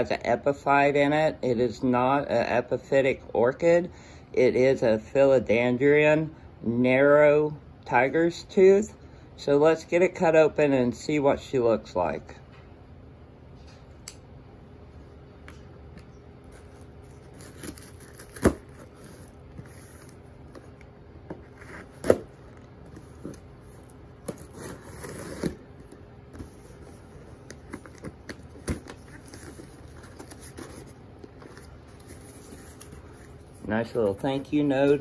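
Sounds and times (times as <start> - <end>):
cardboard flaps rustling: 16.4 - 35.0
packing tape being cut: 16.6 - 20.7, 21.4 - 30.9.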